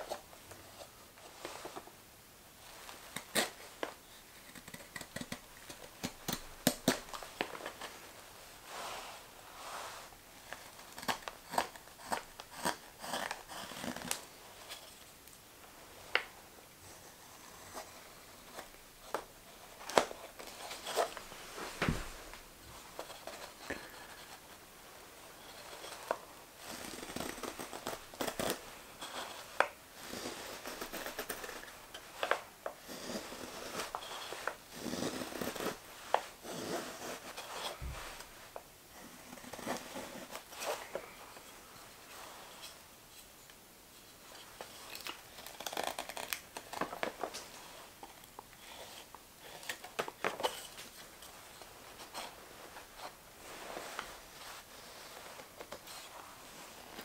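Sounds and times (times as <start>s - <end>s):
knife carving wood: 3.1s - 3.7s, 4.3s - 7.4s, 10.5s - 15.0s, 16.8s - 22.2s, 25.3s - 38.3s, 39.0s - 40.8s, 44.7s - 46.9s.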